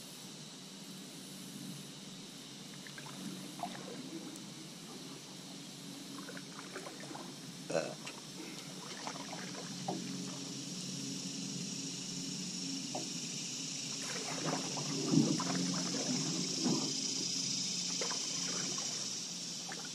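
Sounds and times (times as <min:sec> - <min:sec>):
high hiss: 0:00.0 - 0:19.9
low hum: 0:01.0 - 0:19.8
paddle strokes splashing: 0:02.8 - 0:05.4, 0:06.0 - 0:10.7, 0:13.9 - 0:17.2, 0:17.8 - 0:19.9.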